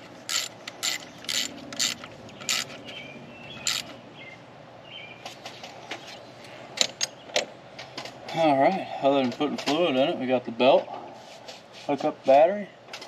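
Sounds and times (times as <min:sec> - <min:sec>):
ratchet wrench clicking: 0:00.3 - 0:02.8, 0:03.6 - 0:03.9
bird chirps: 0:02.3 - 0:06.3.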